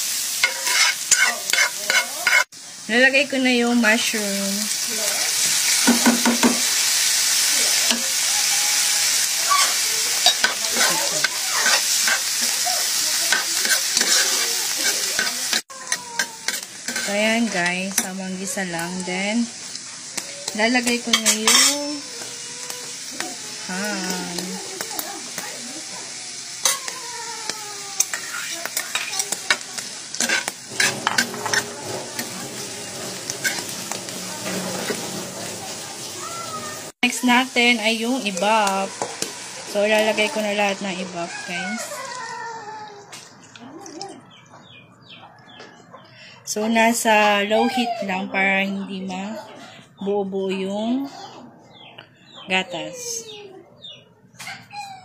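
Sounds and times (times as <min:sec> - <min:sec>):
vegetables sizzling in butter: 0:00.0 - 0:44.1
metal spoon scraping pan: 0:00.3 - 0:02.5, 0:09.5 - 0:23.3, 0:28.0 - 0:37.2.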